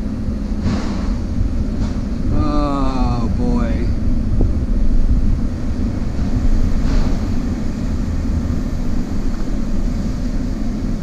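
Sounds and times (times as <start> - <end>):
engine rumbling: 0.0 - 11.0
wind noise on microphone: 0.0 - 11.0.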